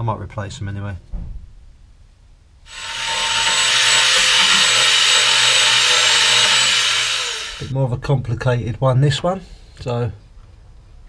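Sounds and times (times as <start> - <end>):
steam cleaner hissing: 2.7 - 7.7.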